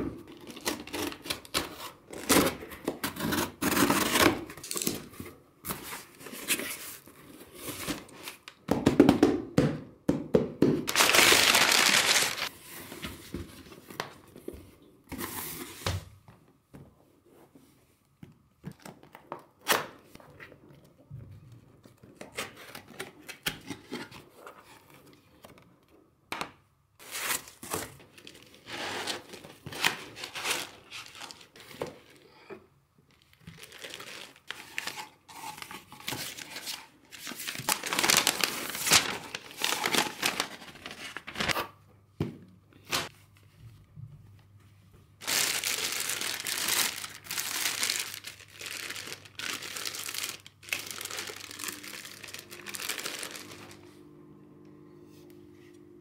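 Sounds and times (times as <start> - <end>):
packaging rustling and crinkling: 10.9 - 14.2, 27.0 - 32.2, 33.1 - 41.6, 45.2 - 53.9.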